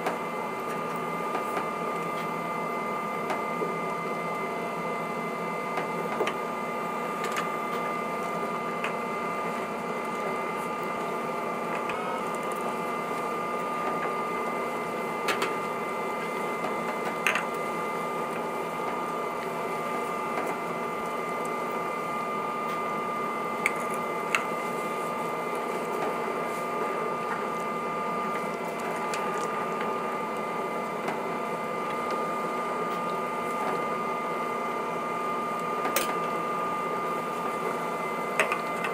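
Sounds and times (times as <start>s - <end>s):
machine hum with high whine: 0.0s - 38.9s.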